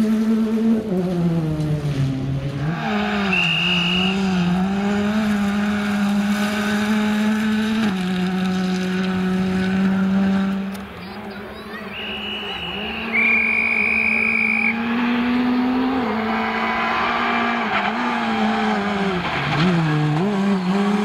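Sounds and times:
rally car engine revving: 0.0s - 21.0s
high squeal-like tone: 2.7s - 4.4s, 11.7s - 14.8s.

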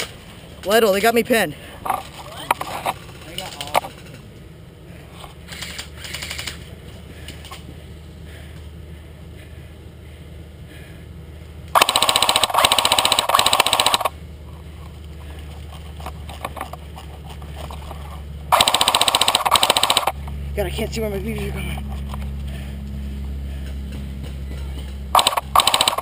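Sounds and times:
airsoft rifle firing full auto: 11.8s - 14.1s, 18.5s - 20.2s, 25.1s - 26.0s.

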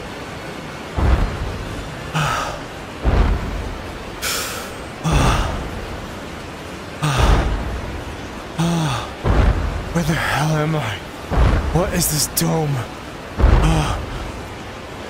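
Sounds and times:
hissing rushes: 0.0s - 15.0s
deep booms: 1.0s - 4.3s, 7.0s - 14.7s.

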